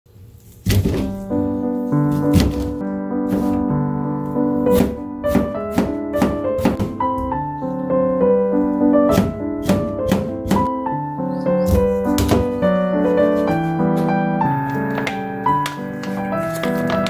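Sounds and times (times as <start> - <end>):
waltz music with piano: 0.7 - 17.0
knife chopping on plastic board: 4.7 - 7.1, 9.1 - 10.7, 11.7 - 12.6.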